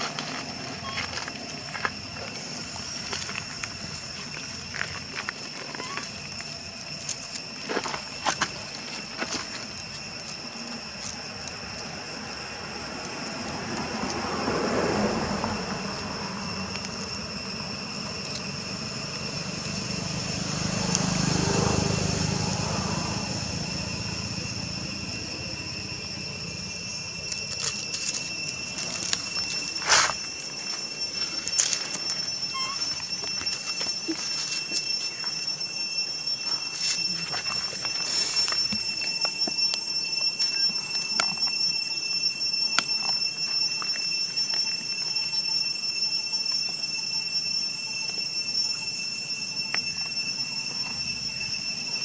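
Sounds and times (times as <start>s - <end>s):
high-pitched drone: 0.0s - 52.0s
passing rumble: 11.6s - 33.8s.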